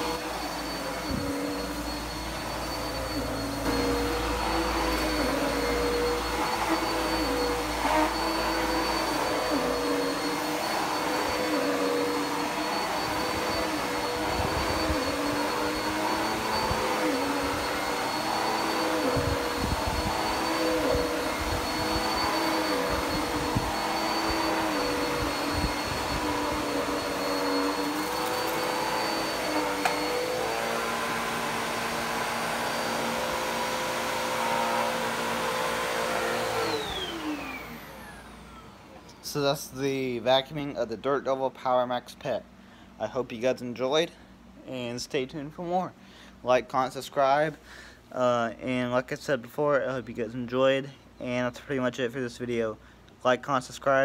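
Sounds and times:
vacuum cleaner motor whine: 0:00.0 - 0:40.8.

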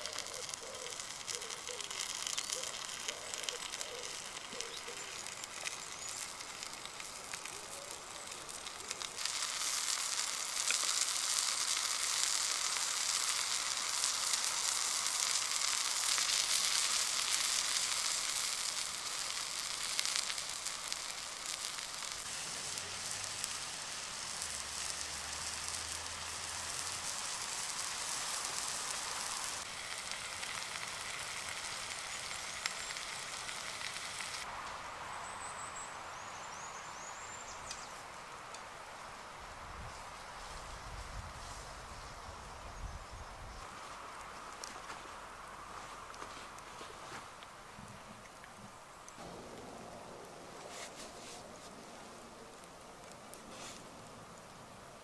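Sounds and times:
bacon sizzling in a pan: 0:00.0 - 0:34.5.

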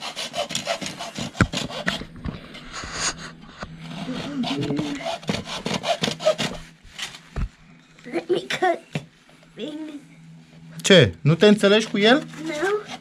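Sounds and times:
hacksaw sawing bamboo cane: 0:00.0 - 0:02.0, 0:03.9 - 0:06.6, 0:12.4 - 0:13.0.

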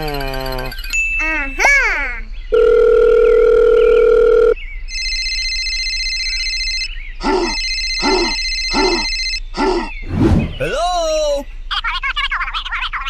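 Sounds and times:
electronic ringing tone: 0:02.5 - 0:09.5
steady phone tone: 0:02.5 - 0:09.5.

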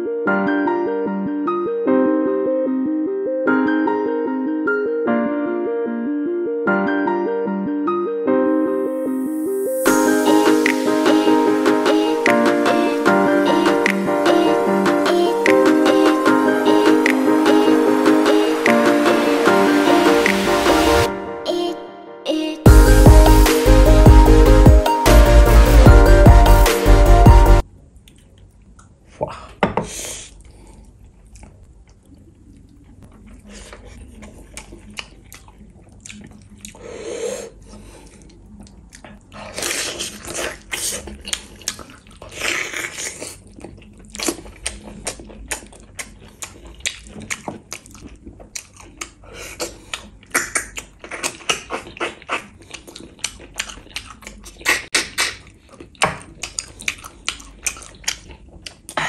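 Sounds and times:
person chewing with wet smacking: 0:28.0 - 0:29.0, 0:30.3 - 0:36.9, 0:37.5 - 0:59.0.

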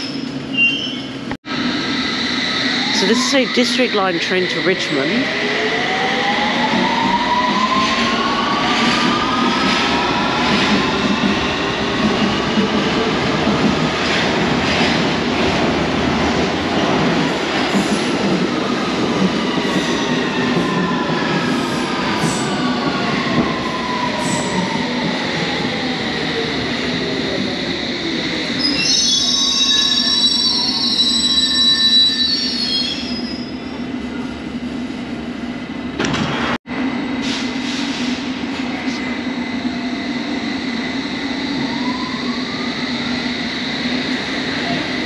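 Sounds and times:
brake and wheel squeal: 0:00.0 - 0:01.2.

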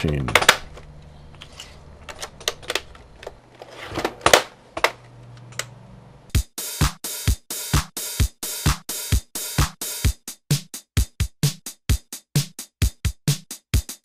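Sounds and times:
drum machine beat: 0:06.3 - 0:14.0.

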